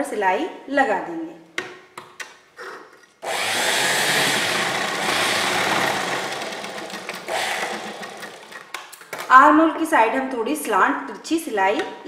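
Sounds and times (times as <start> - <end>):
sewing machine running: 3.2 - 8.7.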